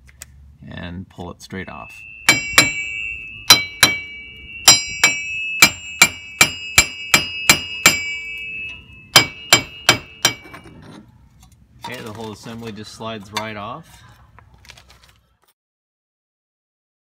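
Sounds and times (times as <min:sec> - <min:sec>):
hammer striking metal: 0:01.7 - 0:10.8.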